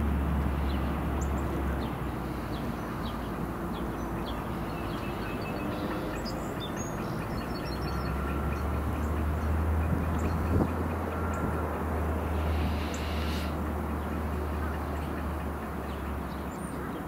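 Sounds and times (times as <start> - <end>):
diesel engine drone: 0.0 - 17.0
birds chirping: 0.4 - 17.0.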